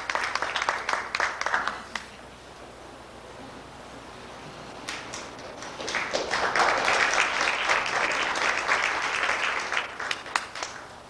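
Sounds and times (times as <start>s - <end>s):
audience applauding: 0.0s - 2.2s, 4.7s - 11.0s.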